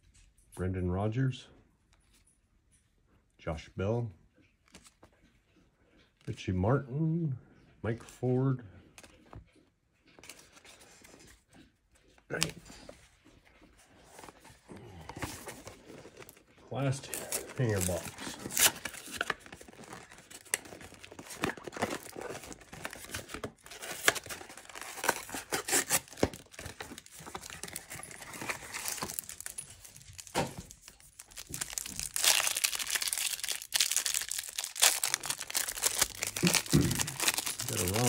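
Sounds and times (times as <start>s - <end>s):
plastic wrapping crinkling: 13.5s - 38.0s
cardboard box tearing: 17.1s - 29.6s, 31.3s - 38.0s.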